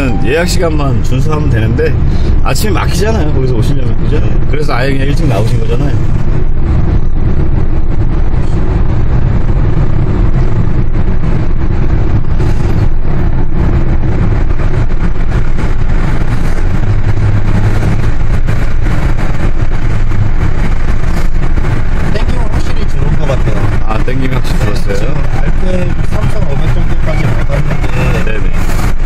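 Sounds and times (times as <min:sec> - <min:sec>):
low hum: 0:00.0 - 0:03.6
car engine and tyres rumbling: 0:00.0 - 0:29.0.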